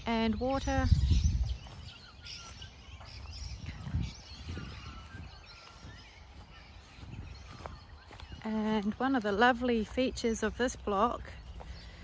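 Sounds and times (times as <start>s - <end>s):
bird chirps and calls: 0.0s - 12.0s
low rumble on microphone: 2.9s - 8.8s.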